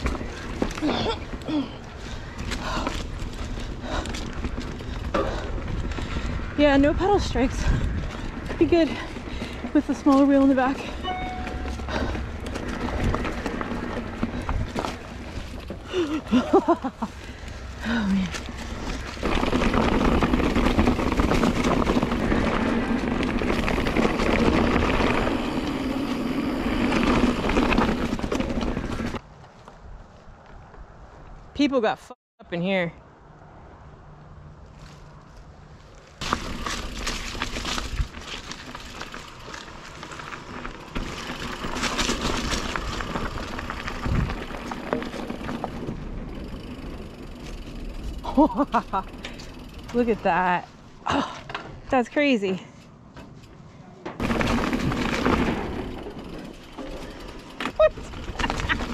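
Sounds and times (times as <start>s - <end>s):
wind buffeting microphone: 0.0s - 10.8s, 42.6s - 46.8s
bike rattling over rough ground: 0.0s - 31.3s, 34.7s - 58.9s
bike tyres rumbling on trail: 0.0s - 31.4s, 34.7s - 58.9s.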